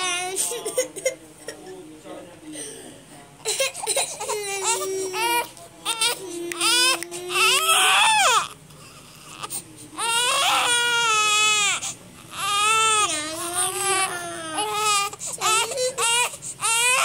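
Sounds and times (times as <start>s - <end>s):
infant crying: 3.4s - 17.0s.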